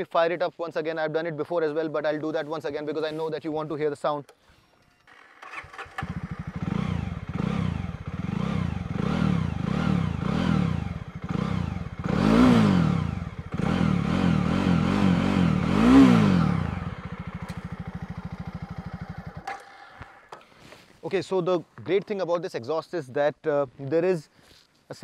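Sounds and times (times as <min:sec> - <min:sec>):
motorcycle engine revving: 0:05.0 - 0:20.6.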